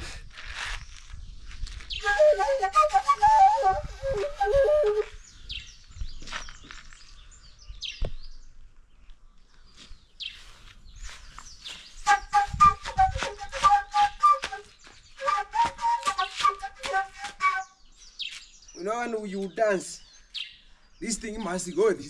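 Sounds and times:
wooden flute melody: 2.0 - 5.2, 12.0 - 17.8
birds chirping: 4.4 - 13.0, 13.6 - 22.0.

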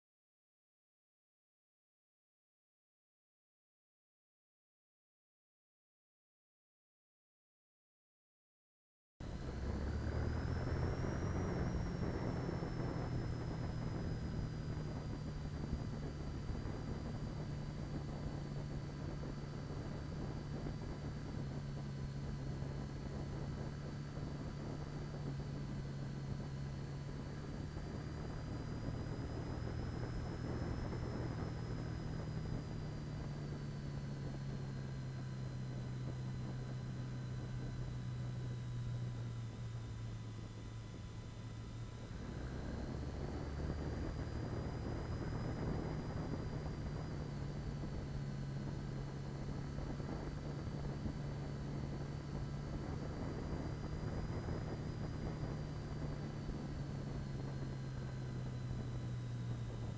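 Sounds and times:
faint high whine: 9.2 - 59.9
motorcycle engine droning: 9.2 - 59.9
wind rushing on microphone: 9.3 - 39.4, 41.8 - 59.9.

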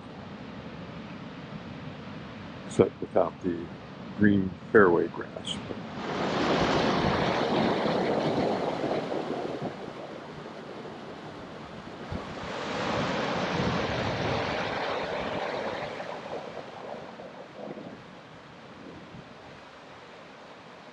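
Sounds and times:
wind buffeting microphone: 5.2 - 19.8.

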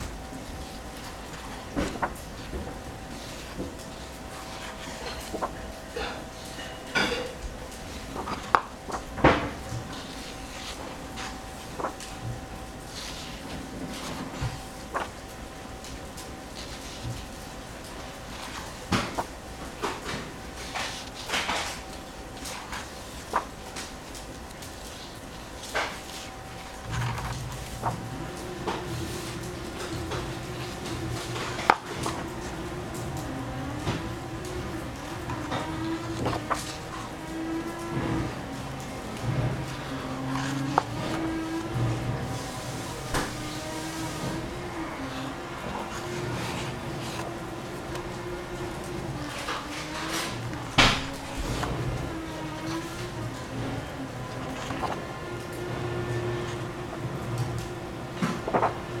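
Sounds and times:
faint steady hum: 0.0 - 59.0
dishes and cutlery clinking: 4.6 - 7.5.

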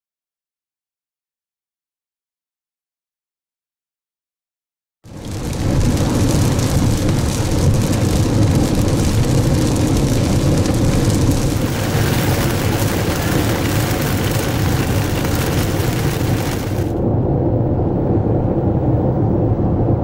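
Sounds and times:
tyres hissing on wet pavement: 5.1 - 17.0.

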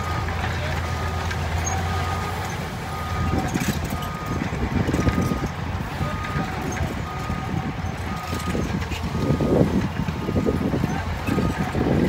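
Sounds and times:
diesel truck engine running: 0.0 - 12.0
reversing alarm beeps: 2.9 - 11.9.

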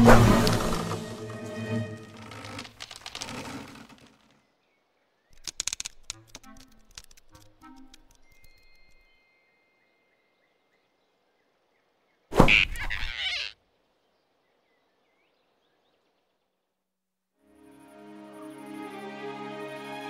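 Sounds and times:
loud cartoon sound effect: 12.4 - 13.5.

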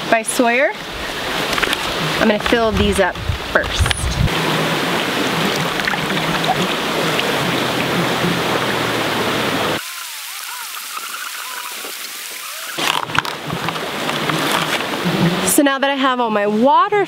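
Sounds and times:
creek rushing over rocks: 0.6 - 15.6
water trickling into bag: 4.3 - 8.0.

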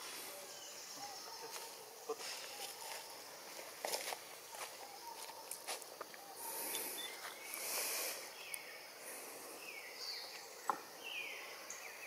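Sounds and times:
monkeys scuffling on leaf litter: 1.4 - 5.9.

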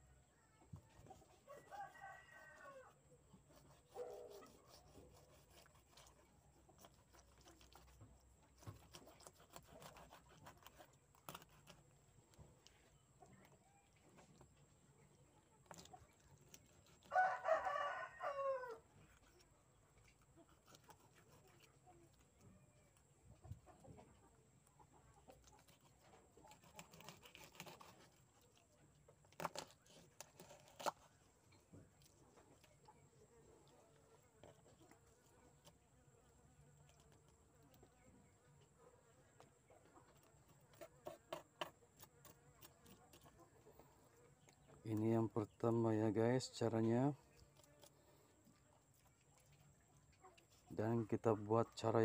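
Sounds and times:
knife cutting on wooden board: 3.5 - 11.8, 25.5 - 28.2.

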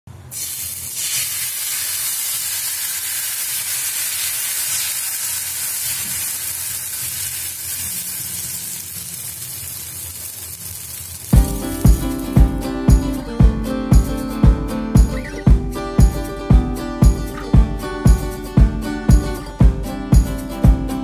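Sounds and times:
batter sizzling on hot pan: 0.3 - 12.3.

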